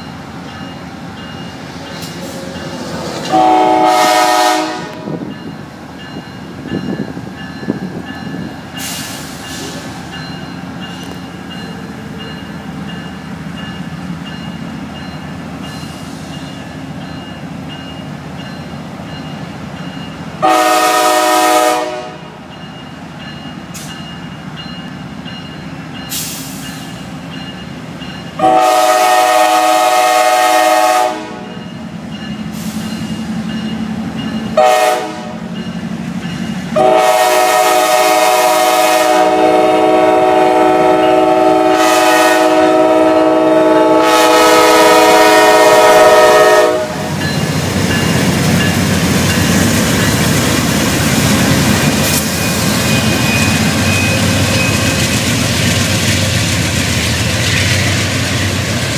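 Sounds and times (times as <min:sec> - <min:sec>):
train rumbling past: 0:00.0 - 0:58.9
locomotive air horn: 0:03.3 - 0:05.2, 0:20.4 - 0:22.3, 0:28.4 - 0:31.6, 0:34.6 - 0:35.4, 0:36.8 - 0:47.1.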